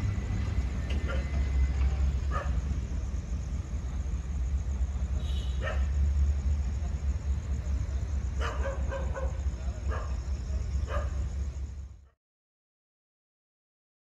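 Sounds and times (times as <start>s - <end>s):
diesel train idling: 0.0s - 12.1s
dog barking: 1.0s - 1.4s, 2.3s - 2.6s, 5.6s - 6.0s, 8.4s - 10.2s, 10.8s - 11.3s.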